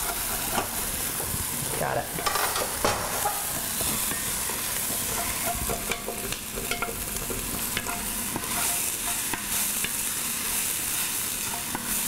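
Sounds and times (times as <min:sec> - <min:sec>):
onions sizzling in butter: 0:00.0 - 0:12.0
wooden spoon scraping pot: 0:02.2 - 0:10.0.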